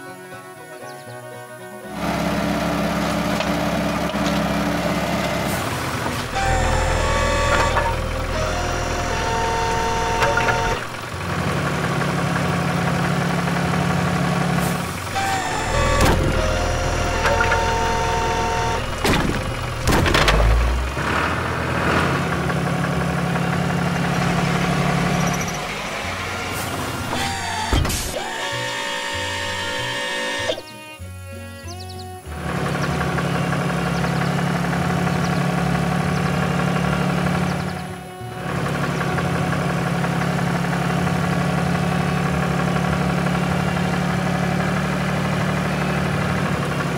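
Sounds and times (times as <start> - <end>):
excavator engine running: 0.0 - 46.9
steady whining tones: 1.8 - 14.2, 14.8 - 21.0, 22.2 - 44.0
machinery clunks: 1.9 - 30.7.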